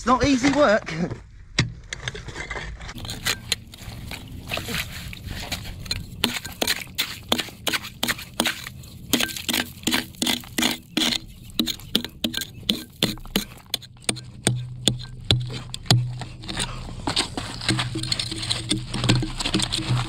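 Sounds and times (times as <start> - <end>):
pickaxe striking stone: 6.2 - 20.0.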